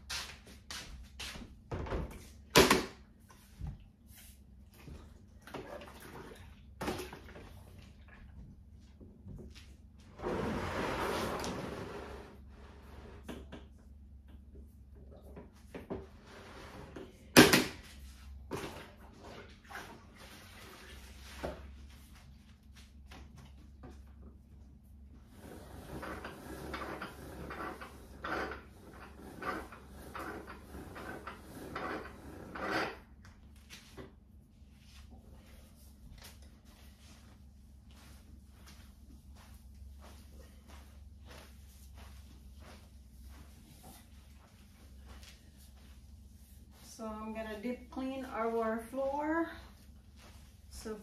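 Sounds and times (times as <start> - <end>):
spin mop whirring rattle: 25.2 - 34.1.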